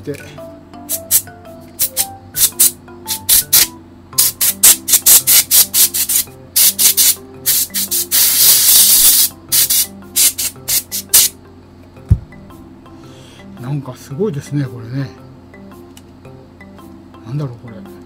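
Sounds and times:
compressed air puffs: 5.0s - 11.3s.

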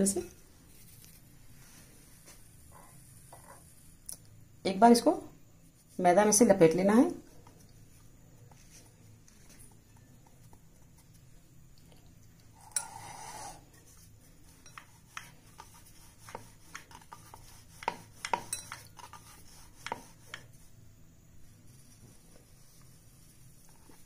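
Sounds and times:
rolling pin on wooden board: 14.7s - 20.6s.

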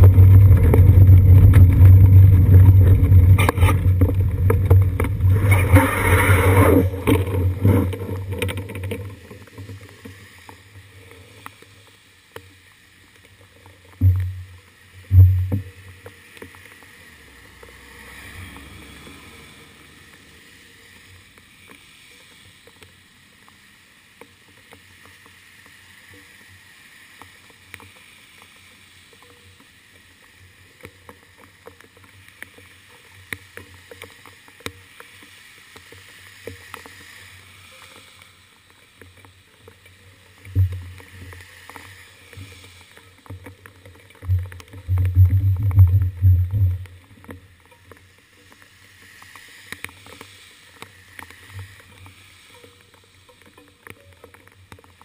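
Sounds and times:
rain ticking: 0.0s - 26.4s, 27.1s - 55.0s
bicycle rumbling on wet road: 0.0s - 55.0s.

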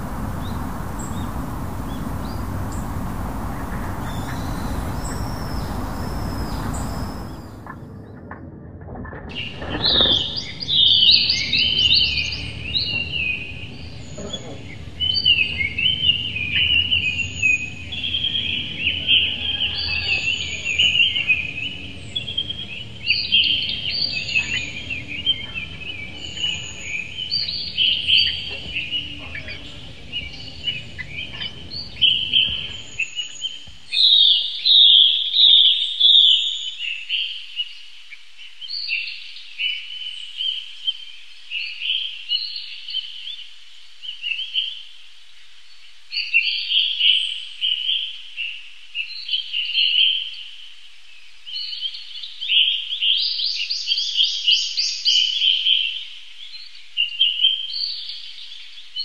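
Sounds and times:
lovebirds chirping: 0.0s - 7.7s
low hum: 0.0s - 7.9s.

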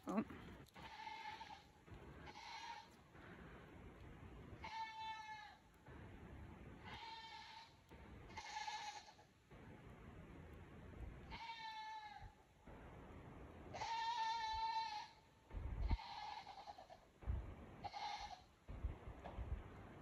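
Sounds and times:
goat bleating: 0.0s - 3.0s, 4.6s - 5.6s, 6.8s - 9.3s, 11.3s - 12.2s, 13.7s - 15.2s, 15.8s - 17.0s, 17.8s - 18.5s.

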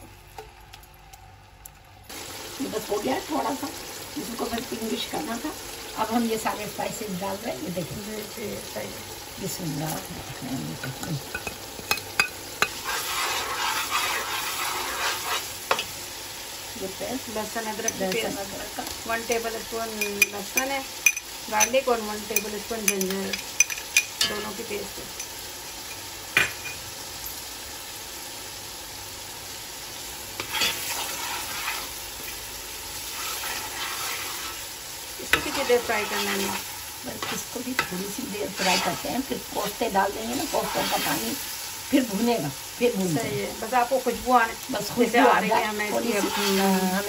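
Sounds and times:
spices sizzling in hot oil: 0.0s - 47.0s
spoon scraping a pan: 10.8s - 15.9s, 17.7s - 24.6s, 30.4s - 32.4s, 33.0s - 34.6s, 35.2s - 39.5s, 40.3s - 41.6s, 45.2s - 47.0s.

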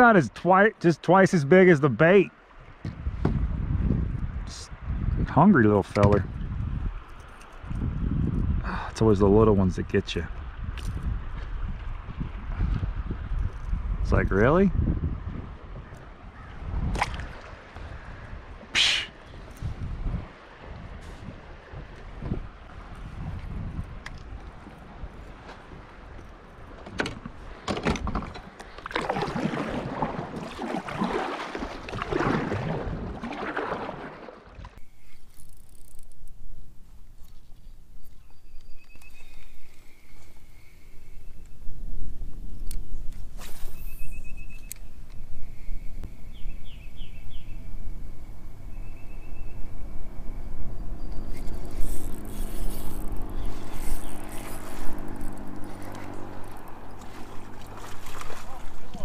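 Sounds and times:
water and movement noise: 0.0s - 59.0s
wind rumbling on microphone: 2.6s - 59.0s
paddle splashing in water: 16.8s - 18.0s, 26.7s - 34.8s, 53.4s - 59.0s
bird chirping and trilling: 43.7s - 44.8s, 45.4s - 48.0s, 48.7s - 54.7s.

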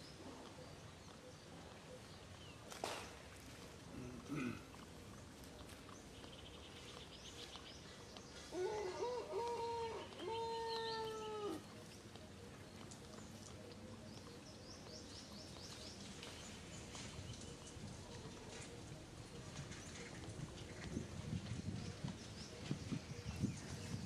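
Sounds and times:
macaque coo calls: 8.5s - 11.8s.

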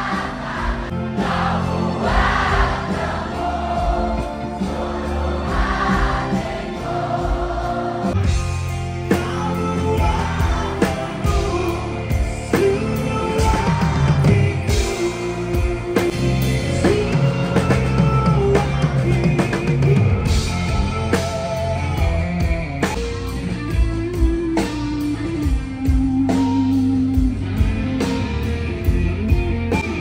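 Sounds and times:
massed voices singing: 0.0s - 8.4s, 9.1s - 20.5s
rock band playing chords: 0.0s - 30.0s.

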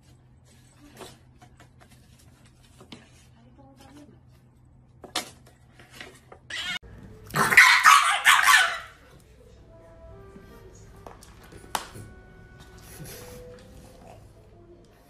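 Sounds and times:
dog snarling barks: 7.3s - 9.0s.

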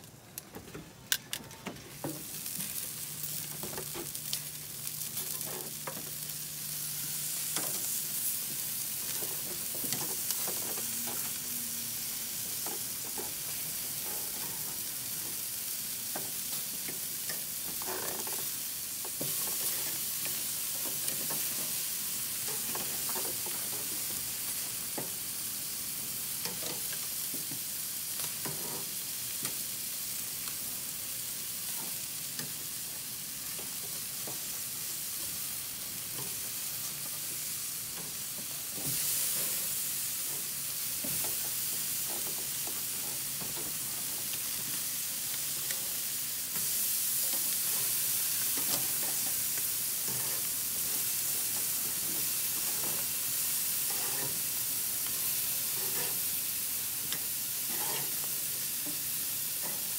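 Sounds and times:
chicken sizzling over charcoal: 0.0s - 59.9s
metal tongs scraping grill grate: 2.7s - 6.2s, 7.3s - 8.4s, 28.2s - 29.0s, 50.0s - 53.1s, 53.9s - 54.4s, 55.6s - 56.3s, 57.1s - 58.3s.

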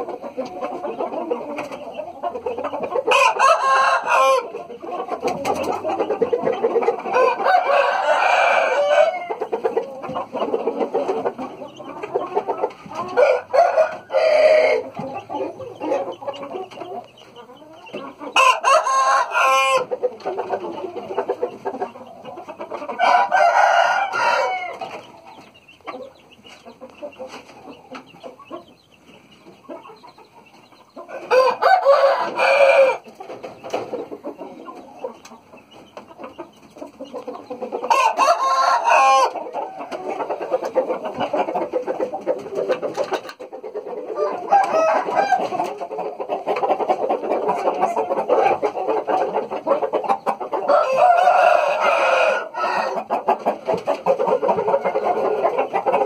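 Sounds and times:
roosters crowing: 0.0s - 25.2s, 31.0s - 34.7s, 37.5s - 43.1s, 43.9s - 45.9s, 50.5s - 56.0s
birds clucking: 0.0s - 56.0s.

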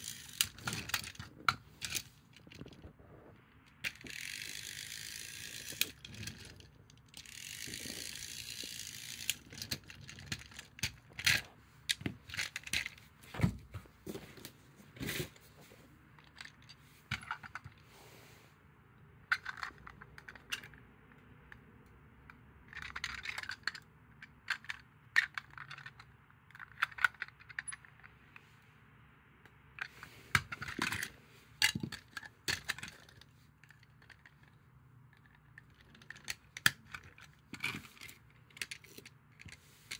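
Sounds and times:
plastic toy parts clicking: 0.0s - 2.8s, 3.7s - 13.0s, 16.2s - 17.8s, 19.3s - 20.8s, 22.2s - 28.1s, 29.8s - 39.9s.

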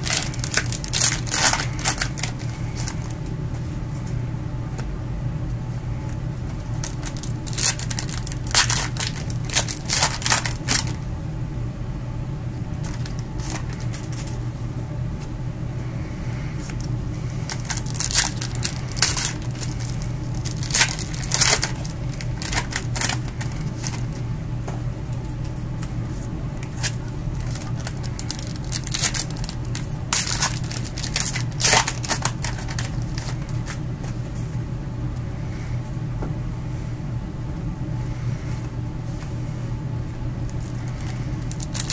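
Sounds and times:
foil wrappers crinkling and tearing: 0.0s - 3.3s, 6.5s - 11.0s, 12.8s - 14.4s, 16.6s - 24.2s, 26.6s - 33.8s, 40.5s - 41.9s
steady low hum: 0.0s - 41.9s.

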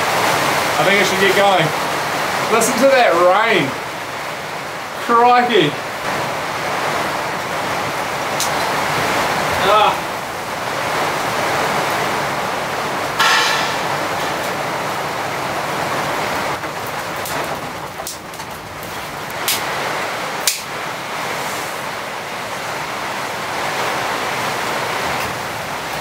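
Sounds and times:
heavy rain hissing: 0.0s - 26.0s
sticks cracking: 20.4s - 20.7s.

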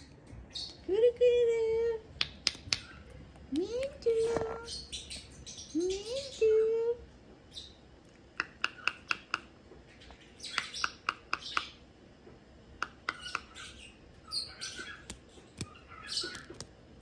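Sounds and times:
lovebird chirping: 2.3s - 6.6s, 8.4s - 11.8s, 12.9s - 16.6s.

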